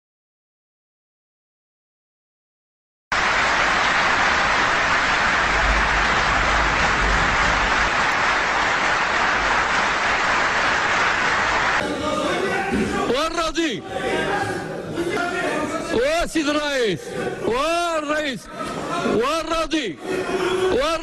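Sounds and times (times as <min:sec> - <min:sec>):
large crowd applauding: 0:03.1 - 0:11.8.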